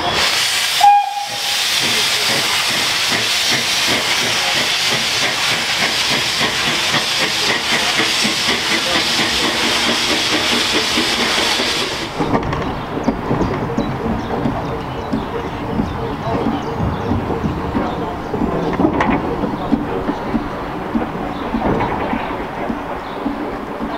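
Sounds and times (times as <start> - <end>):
steam locomotive hissing: 0.0 - 23.9
steam whistle: 0.7 - 1.6.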